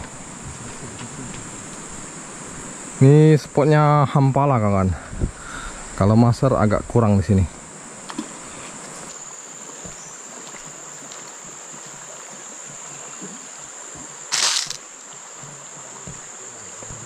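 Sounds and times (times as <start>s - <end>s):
insects droning: 0.0s - 17.0s
river rushing: 9.3s - 16.9s.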